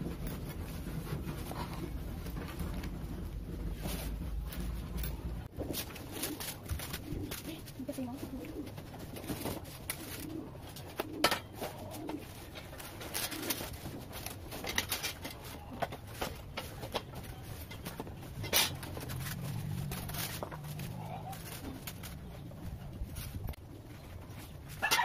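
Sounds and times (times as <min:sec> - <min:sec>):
styrofoam and cardboard rustling: 0:00.0 - 0:23.6
bird cooing: 0:06.1 - 0:14.1.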